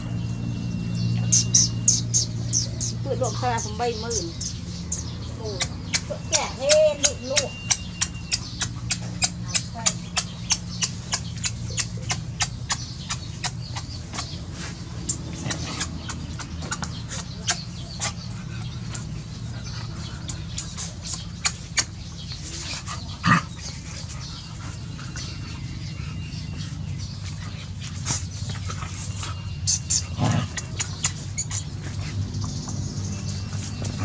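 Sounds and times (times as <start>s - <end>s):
puppies playing: 0.0s - 34.0s
sharp ticks: 4.9s - 14.4s, 20.2s - 22.4s.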